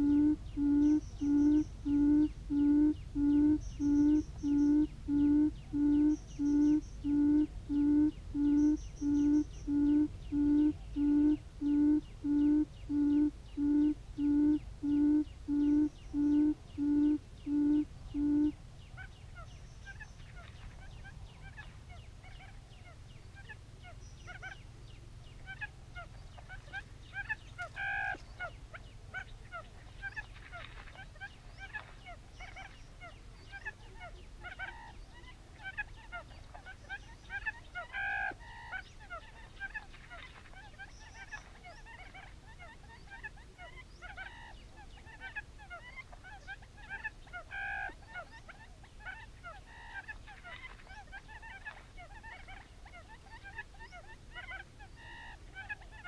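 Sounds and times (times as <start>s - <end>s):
quail call through speaker: 0.0s - 19.5s, 31.7s - 56.0s
faint bird chirps: 0.0s - 56.0s.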